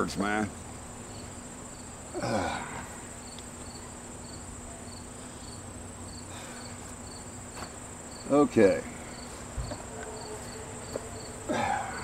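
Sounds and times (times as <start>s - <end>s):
insects trilling and chirping: 0.0s - 12.0s
man grunting: 2.1s - 2.9s, 11.5s - 12.0s.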